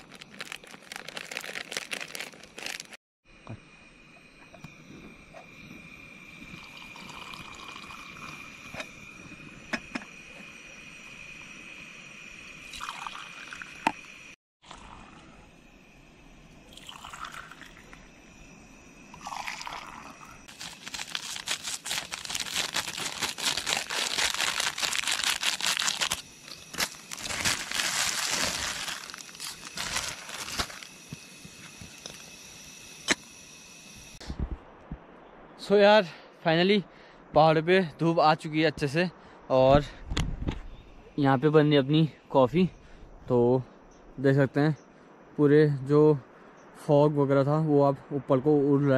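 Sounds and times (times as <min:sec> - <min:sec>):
coffee pouring into a mug: 0:06.5 - 0:08.5, 0:12.7 - 0:14.0, 0:14.6 - 0:15.3, 0:16.7 - 0:18.0, 0:19.1 - 0:20.4.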